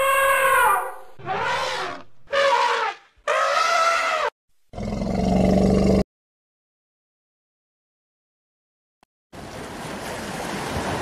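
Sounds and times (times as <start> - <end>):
elephant trumpeting: 0.0 - 4.3.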